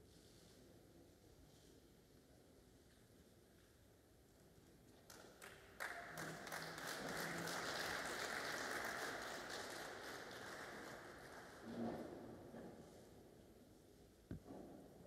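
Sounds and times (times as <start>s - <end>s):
audience applause: 5.4s - 11.6s.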